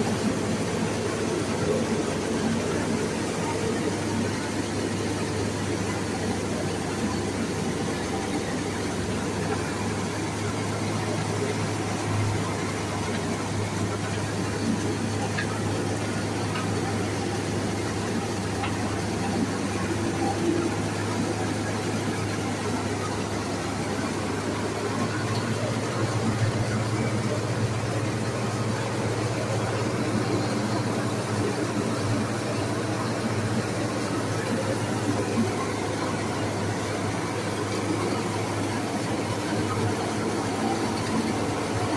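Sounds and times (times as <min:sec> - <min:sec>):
rice mill machine drone: 0:00.0 - 0:41.9.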